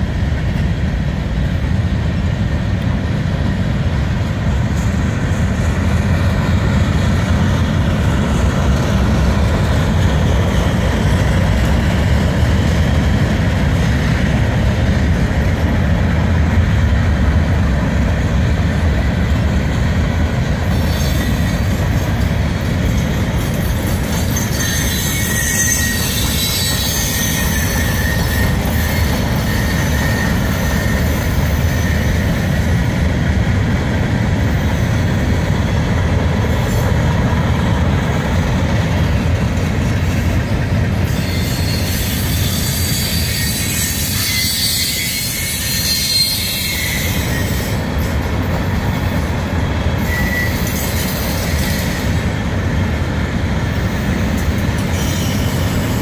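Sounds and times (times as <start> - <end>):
freight train wheels rumbling: 0.0 - 56.0
high wheel squeal: 20.6 - 32.8, 40.1 - 52.3, 53.8 - 56.0.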